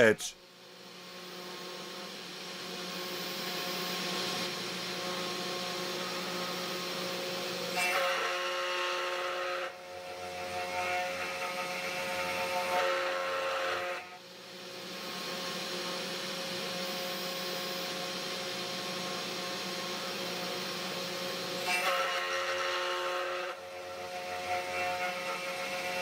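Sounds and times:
spindle motor whine: 2.6s - 7.0s.

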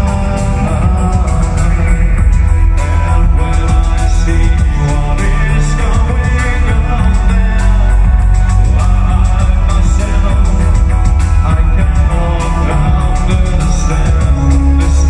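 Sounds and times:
heavy bass: 0.0s - 15.0s
synthesizers: 0.0s - 15.0s.

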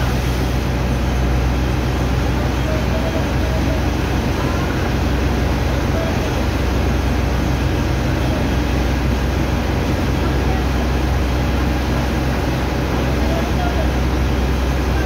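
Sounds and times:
pump machinery drone: 0.0s - 15.0s.

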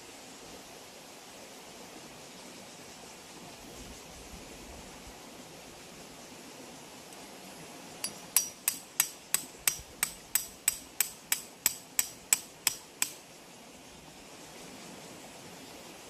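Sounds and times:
hammer striking metal: 8.0s - 13.2s.

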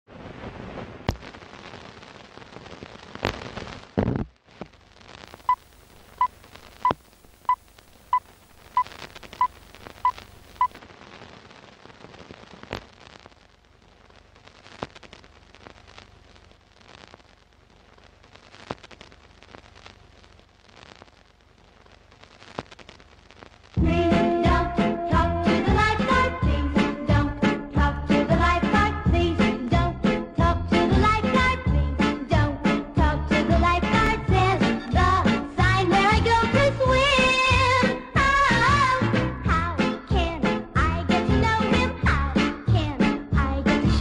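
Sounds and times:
film crackle and hiss: 0.1s - 44.0s
clicks and pops: 1.0s - 1.8s, 2.5s - 17.4s, 18.0s - 23.8s.

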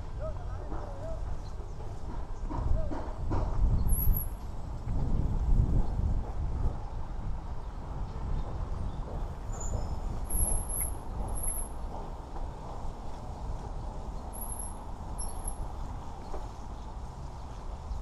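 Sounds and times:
wind buffeting microphone: 0.0s - 18.0s
faint high-pitched chirping: 14.3s - 15.6s.

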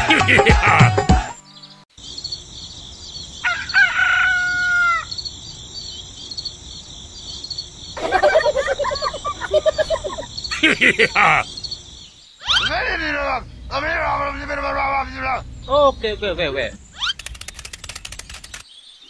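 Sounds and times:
birds chirping: 0.0s - 19.0s
insects: 1.3s - 19.0s
rooster crowing: 3.4s - 5.2s
quick rapid calls: 12.4s - 18.7s.

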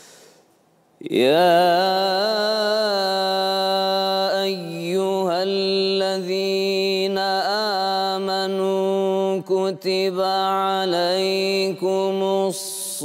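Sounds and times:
man chanting recitation: 1.0s - 13.0s.

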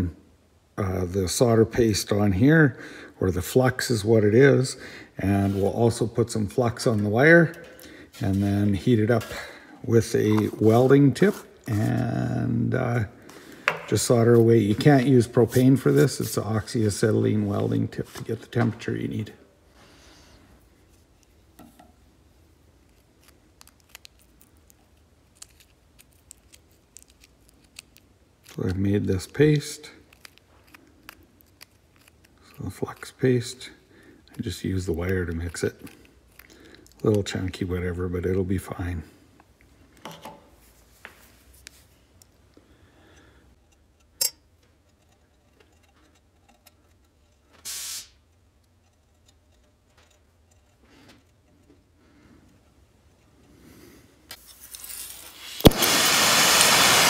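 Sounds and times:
small ticks and scrapes: 22.8s - 33.4s
short loud hiss: 47.6s - 48.2s, 54.9s - 57.0s.

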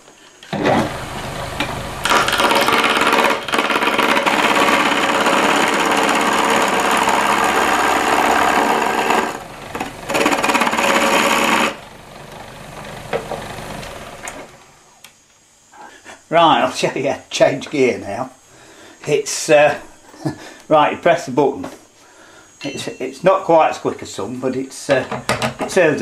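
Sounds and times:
turning tool scraping wood: 0.6s - 14.6s
wood lathe running: 0.6s - 14.7s.

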